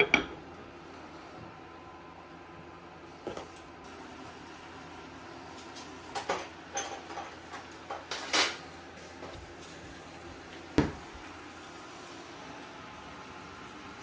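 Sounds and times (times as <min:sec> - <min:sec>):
gas burner hiss: 0:03.0 - 0:14.0
water sizzling on hot pot: 0:03.3 - 0:14.0.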